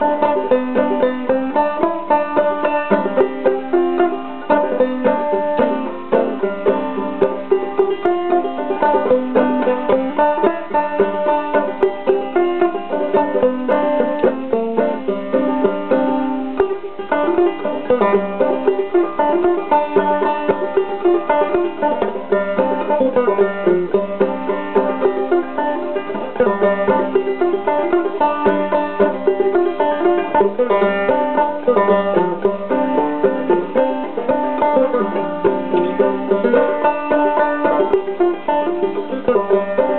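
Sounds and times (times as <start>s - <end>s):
banjo plucked notes: 0.0s - 39.9s.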